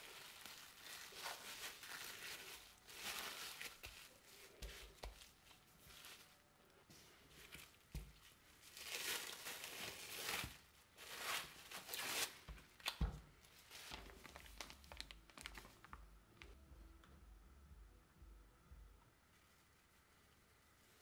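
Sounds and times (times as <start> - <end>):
cling film crinkling: 0.0 - 6.4, 7.4 - 16.6.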